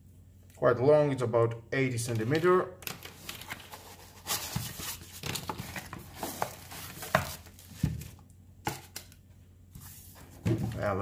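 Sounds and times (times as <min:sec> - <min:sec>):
packaging rustling and crinkling: 0:02.8 - 0:08.2.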